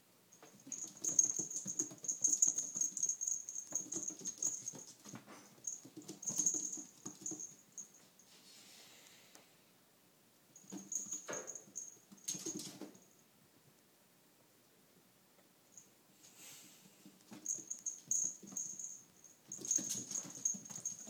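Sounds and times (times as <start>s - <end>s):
collar bell jingling: 0.3s - 8.1s, 10.6s - 13.0s, 17.3s - 21.0s
paws scrabbling on tiles: 0.4s - 8.2s, 17.0s - 21.0s.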